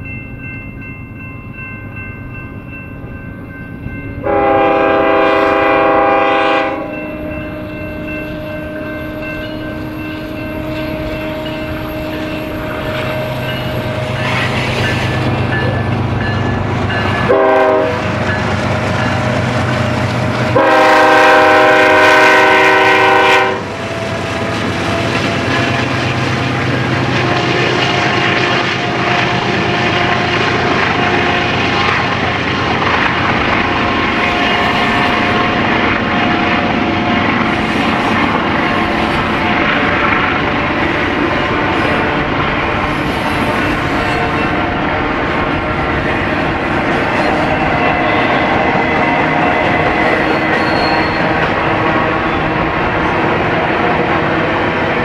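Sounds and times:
locomotive engine rumble: 0:03.7 - 0:55.0
locomotive air horn blasts: 0:04.2 - 0:07.2, 0:17.3 - 0:18.1, 0:20.5 - 0:23.8.

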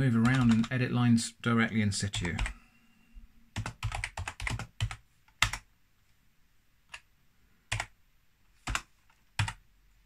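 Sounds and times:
typing on computer keyboard: 0:00.2 - 0:00.7, 0:02.2 - 0:02.6, 0:03.6 - 0:05.7, 0:07.7 - 0:07.9, 0:08.6 - 0:09.6.

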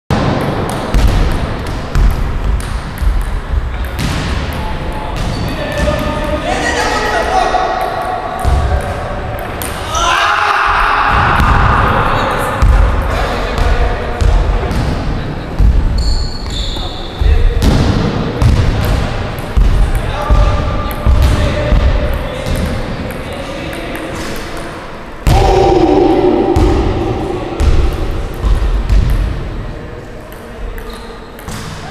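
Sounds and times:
basketball bouncing on floor: 0:00.2 - 0:04.6, 0:17.2 - 0:22.7, 0:27.6 - 0:29.4.

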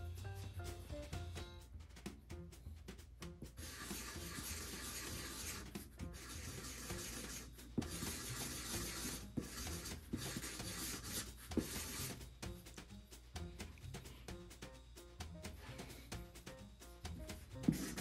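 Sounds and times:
marker scratching on cardboard: 0:03.5 - 0:12.6, 0:17.0 - 0:18.0.

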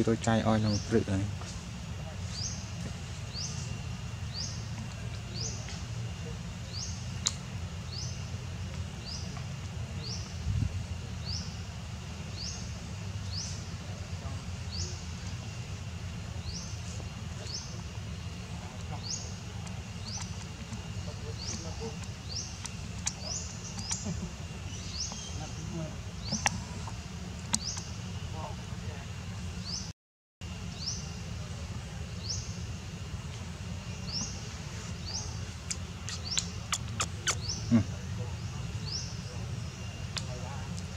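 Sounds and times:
steady low rumble: 0:00.0 - 0:29.8.

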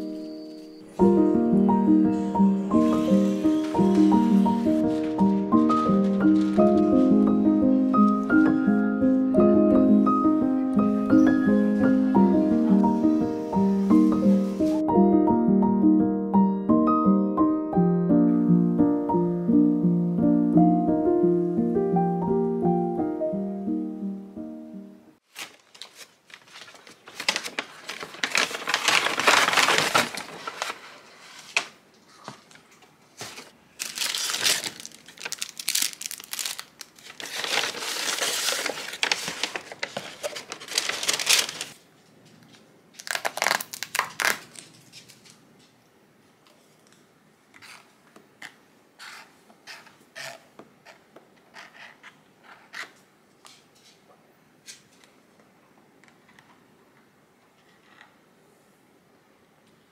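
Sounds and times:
paper bags rustling: 0:02.2 - 0:08.6, 0:25.2 - 0:41.9, 0:43.0 - 0:45.4
plastic wrapping crinkling: 0:02.7 - 0:07.2, 0:25.2 - 0:41.8, 0:42.9 - 0:45.4.

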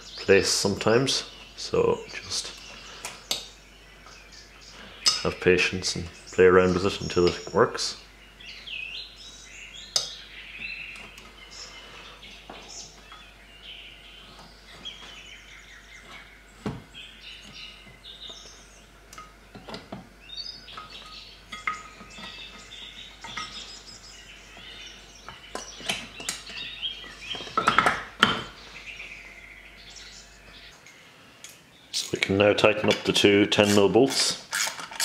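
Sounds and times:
birds chirping: 0:00.0 - 0:34.6
metal clicks and scrapes: 0:33.5 - 0:35.0.

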